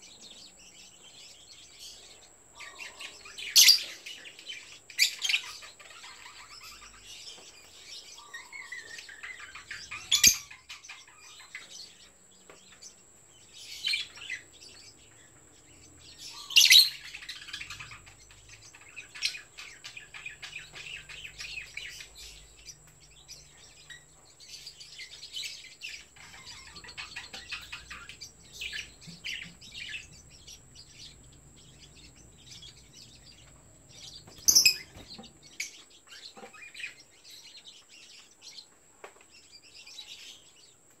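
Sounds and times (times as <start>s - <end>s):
lovebirds chirping: 0.0s - 41.0s
loud sharp bird calls: 12.8s - 37.8s.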